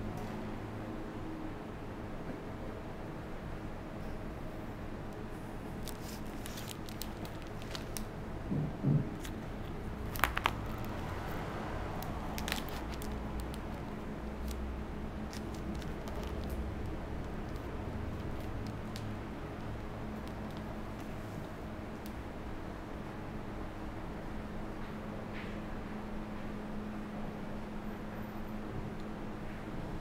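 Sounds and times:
steady low hum: 0:00.0 - 0:30.0
light clicks and crackles: 0:05.8 - 0:08.1, 0:15.3 - 0:22.2
dull knock: 0:08.5 - 0:09.1.

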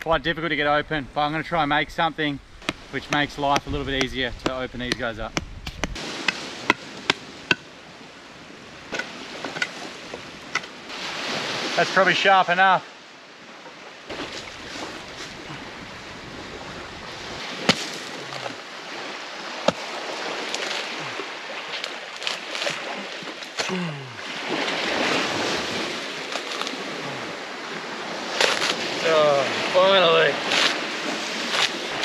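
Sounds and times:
surf washing: 0:00.6 - 0:32.0
sharp knocks on coconut: 0:02.6 - 0:07.7, 0:17.6 - 0:18.6, 0:19.6 - 0:19.9
fibrous husk tearing: 0:19.7 - 0:21.0, 0:21.8 - 0:22.8, 0:26.2 - 0:26.9, 0:28.3 - 0:29.0, 0:30.4 - 0:30.8, 0:31.4 - 0:32.0.

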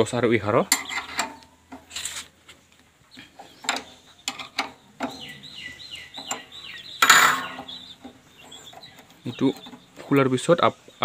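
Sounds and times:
spanner clinking on metal: 0:00.7 - 0:01.9, 0:03.6 - 0:05.3, 0:06.1 - 0:09.9
bird chirping: 0:00.7 - 0:11.0.

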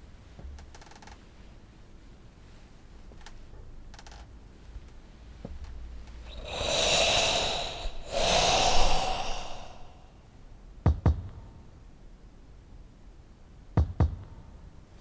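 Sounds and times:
man breathing heavily: 0:06.3 - 0:10.1.

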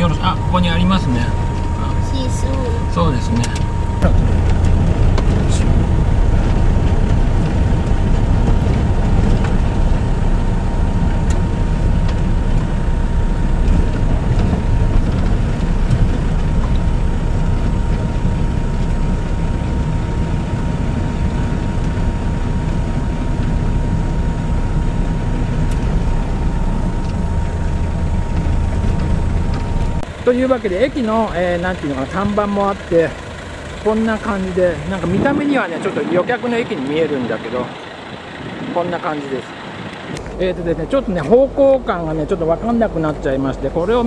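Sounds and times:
thin high tone: 0:00.0 - 0:04.1
truck engine and road rumble: 0:00.0 - 0:44.0.

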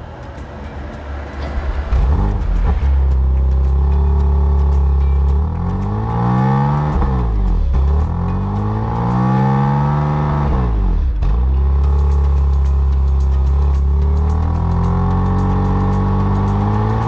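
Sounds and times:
car engine idling and revving: 0:00.0 - 0:17.0.

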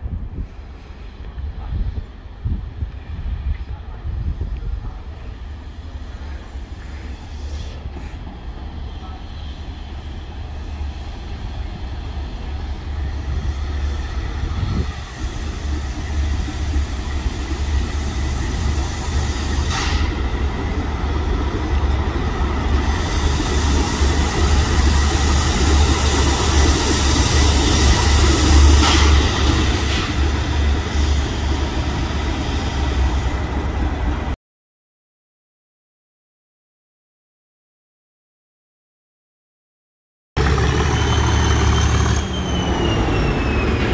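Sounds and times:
diesel locomotive rumble: 0:00.0 - 0:34.4, 0:40.4 - 0:43.9
hiss: 0:14.8 - 0:20.2, 0:22.8 - 0:31.8.

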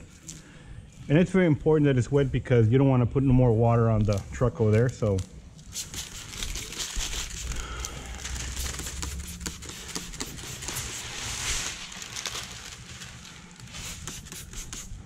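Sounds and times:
plastic film crinkling: 0:04.0 - 0:15.0.

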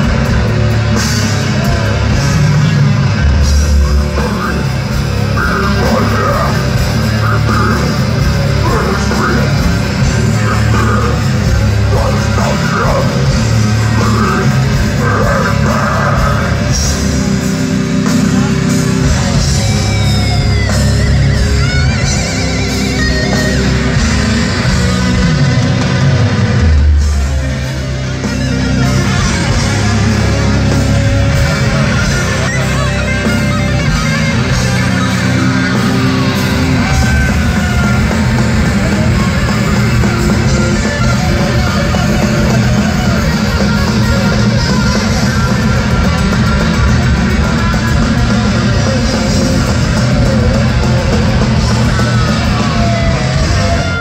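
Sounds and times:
death metal band playing live: 0:00.0 - 0:54.0
lead guitar sliding in pitch: 0:01.2 - 0:54.0.

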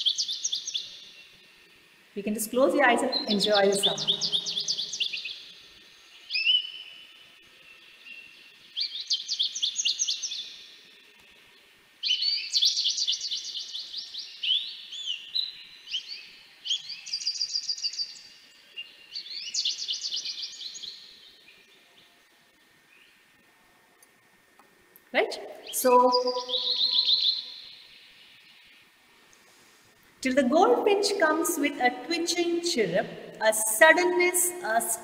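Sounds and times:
finch twittering trills: 0:00.0 - 0:01.3, 0:02.5 - 0:05.5, 0:06.2 - 0:07.1, 0:07.8 - 0:10.7, 0:12.0 - 0:21.4, 0:25.3 - 0:28.8.

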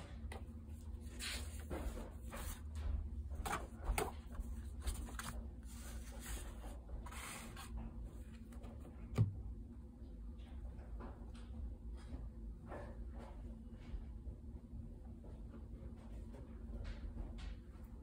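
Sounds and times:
paper notecards rustling: 0:01.0 - 0:07.8.

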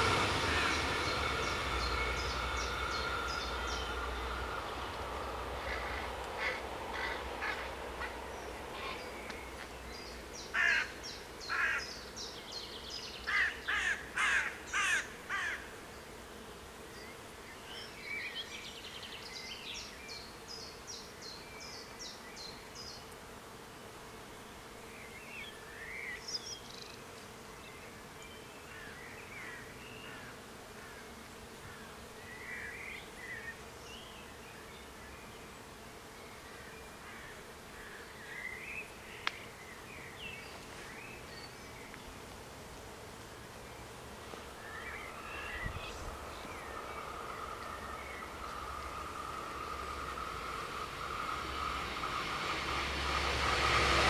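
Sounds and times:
train rumble: 0:00.0 - 0:09.6, 0:44.4 - 0:54.0
faint steady hum: 0:00.0 - 0:54.0
crow cawing: 0:05.6 - 0:08.2, 0:10.5 - 0:11.9, 0:13.3 - 0:15.7.

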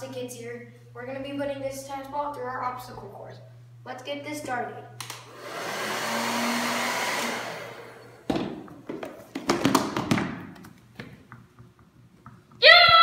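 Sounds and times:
hair dryer blowing: 0:05.0 - 0:08.3
sharp knocks and thumps: 0:08.3 - 0:12.6.

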